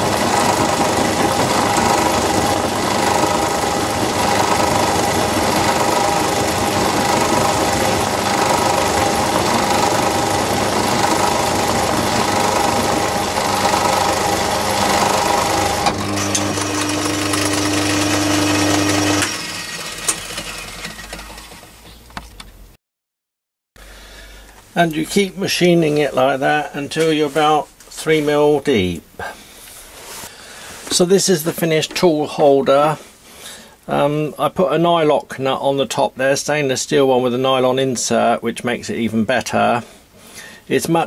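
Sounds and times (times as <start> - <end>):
lathe milling cutting noise: 0.0 - 21.7
lathe running free: 0.0 - 21.8
lathe winding down: 0.0 - 21.8.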